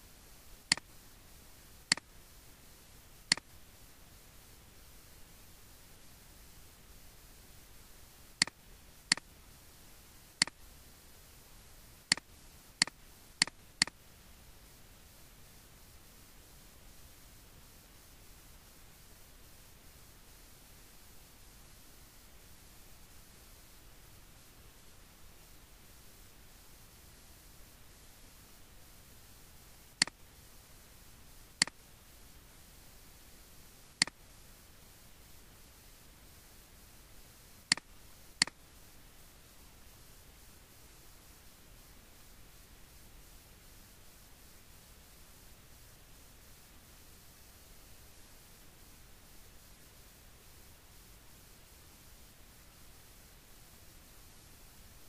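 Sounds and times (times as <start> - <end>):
faint steady hiss: 0.0 - 55.0
computer mouse clicking: 0.7 - 0.9, 1.9 - 2.1, 3.3 - 3.5, 8.4 - 9.3, 10.4 - 10.6, 12.1 - 14.0, 30.0 - 30.2, 31.6 - 31.8, 33.9 - 34.2, 37.7 - 38.6.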